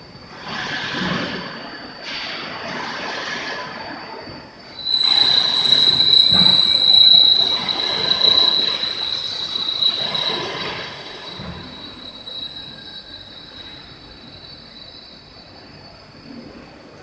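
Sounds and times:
steady machine noise: 4.6s - 15.8s
high-pitched drill bit squeal: 4.7s - 15.8s.

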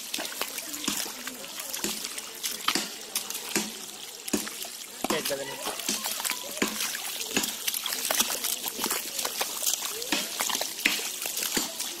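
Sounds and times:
splashing in muddy water: 0.0s - 12.0s.

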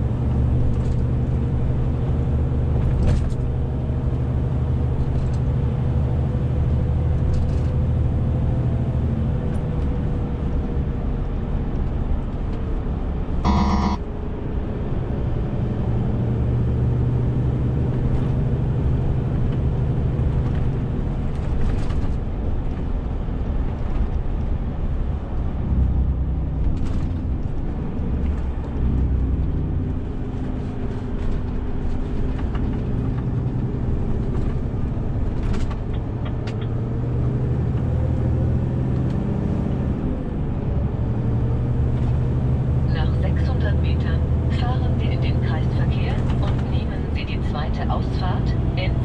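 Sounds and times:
road noise: 0.0s - 49.0s
diesel truck engine running: 25.2s - 49.0s.

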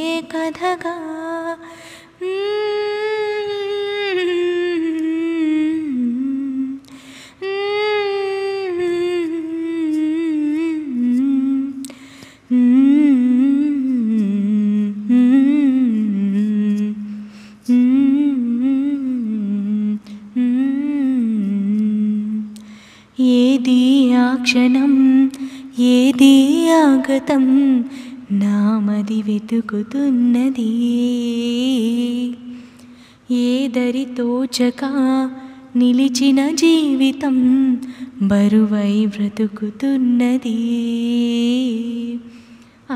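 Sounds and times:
breaths: 1.6s - 2.2s, 6.8s - 7.4s, 11.8s - 12.5s, 17.1s - 17.7s, 22.6s - 23.2s, 25.4s - 25.8s, 27.8s - 28.2s, 32.5s - 33.3s, 35.4s - 35.7s, 37.8s - 38.2s, 42.2s - 42.9s
woman humming a melody: 2.3s - 11.9s, 17.7s - 22.6s.

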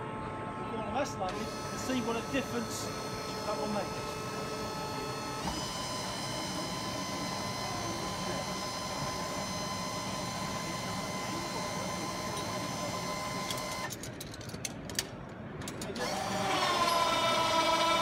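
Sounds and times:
steady mechanical whine: 0.0s - 18.0s.

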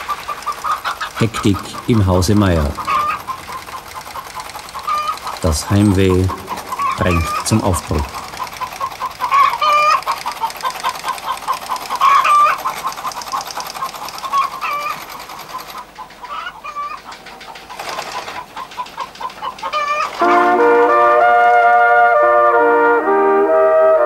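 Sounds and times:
chicks cheeping: 0.0s - 20.2s
hen clucking: 0.0s - 20.3s
trumpets playing: 20.2s - 24.0s.

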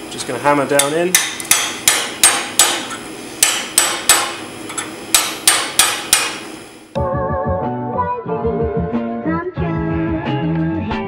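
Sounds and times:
hammer striking chisel on steel: 0.8s - 6.5s.

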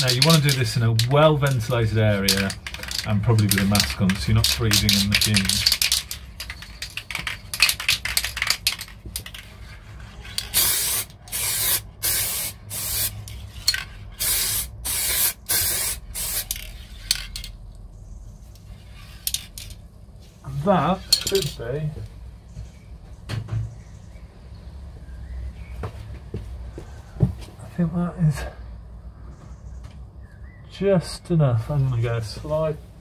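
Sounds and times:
spray can hissing bursts: 10.4s - 13.4s, 14.2s - 16.7s.

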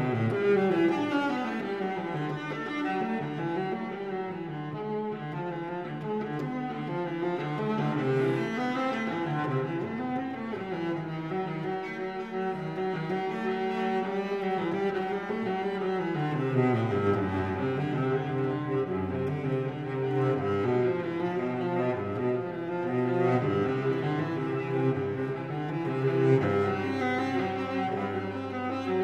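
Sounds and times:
low bowed strings music: 0.0s - 29.0s.

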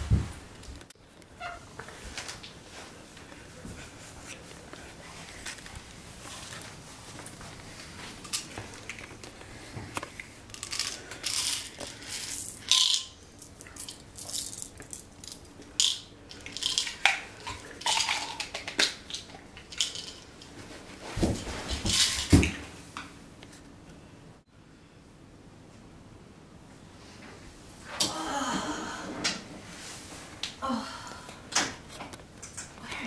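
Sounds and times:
pills rattling in plastic bottle: 10.5s - 20.2s.

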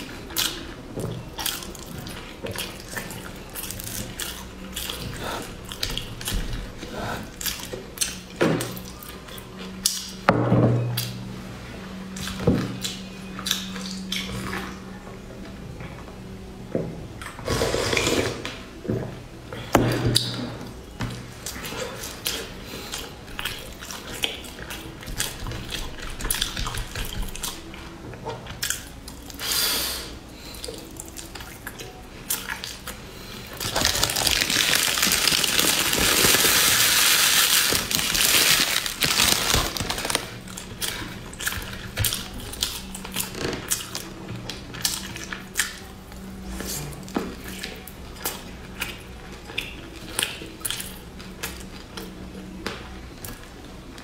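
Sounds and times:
chewing and wet mouth sounds: 0.0s - 10.3s, 12.0s - 15.0s, 21.3s - 54.0s
plastic bag crinkling: 33.5s - 40.8s.

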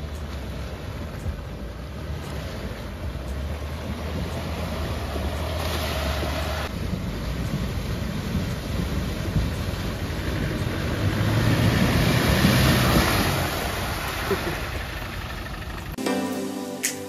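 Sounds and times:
car engine running: 13.9s - 16.0s
music: 16.0s - 17.0s.

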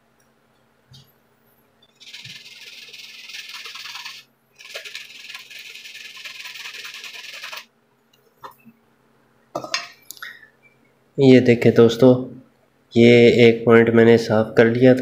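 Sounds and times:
sandpaper rubbing on metal: 2.0s - 7.7s.

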